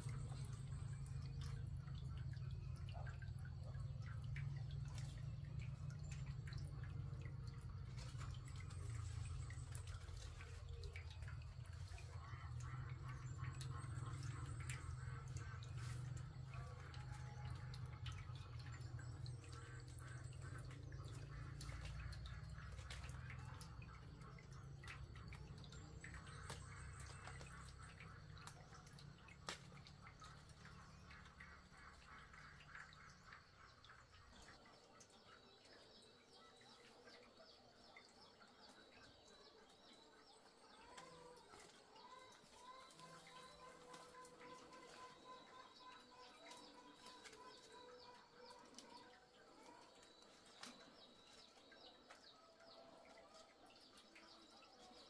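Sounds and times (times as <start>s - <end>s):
birds chirping faintly: 0.0s - 55.0s
leaves and twigs rustling: 7.2s - 13.7s, 15.6s - 17.6s, 21.5s - 23.4s, 40.8s - 48.0s.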